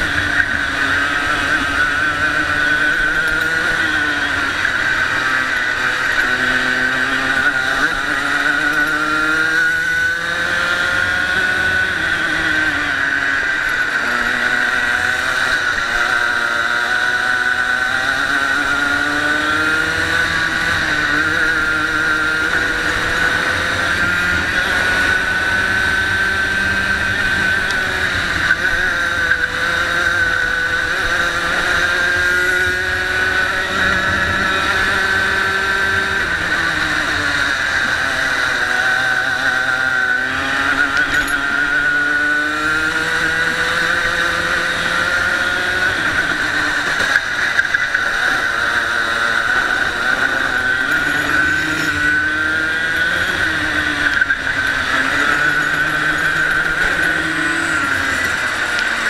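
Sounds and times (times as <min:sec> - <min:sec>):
racing kart engine: 0:00.0 - 0:59.0.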